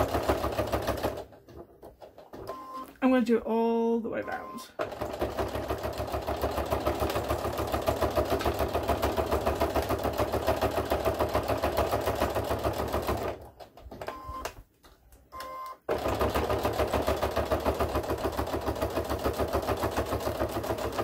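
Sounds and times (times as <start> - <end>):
sewing machine stitching: 0.0 - 2.8, 4.8 - 14.4, 15.8 - 21.0
short beeps: 4.2 - 4.7.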